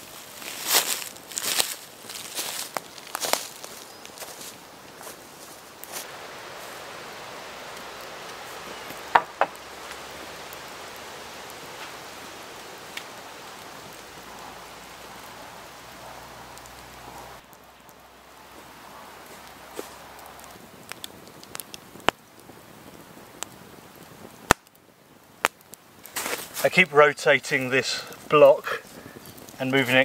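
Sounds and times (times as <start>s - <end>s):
campfire hissing and crackling: 0.0s - 30.0s
sharp fire pops: 6.8s - 30.0s.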